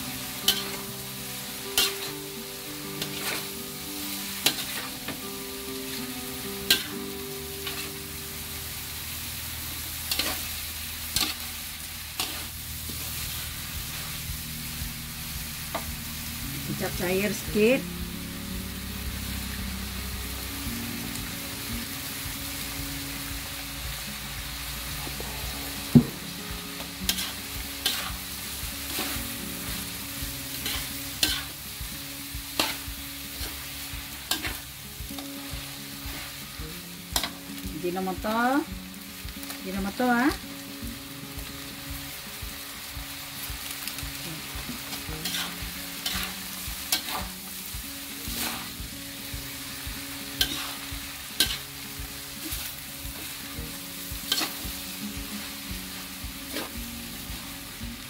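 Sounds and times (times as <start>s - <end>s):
noodles sizzling in a pan: 0.0s - 58.0s
spatula scraping a pan: 3.0s - 3.6s, 10.0s - 10.5s, 12.2s - 14.1s, 27.1s - 28.2s, 30.5s - 31.6s, 32.6s - 33.6s, 45.2s - 47.5s, 48.3s - 48.8s, 50.4s - 51.7s, 54.3s - 54.6s.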